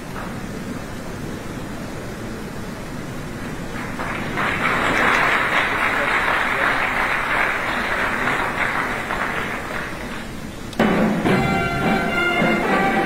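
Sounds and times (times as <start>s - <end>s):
crowd applauding: 3.4s - 10.5s.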